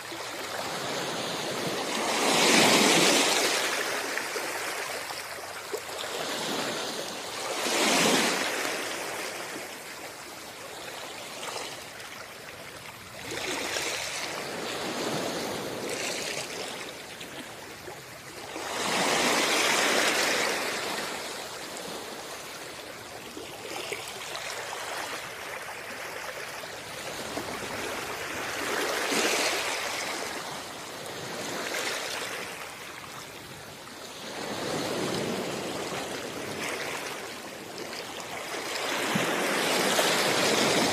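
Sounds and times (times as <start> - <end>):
sea waves washing onto shore: 18.4 - 40.9.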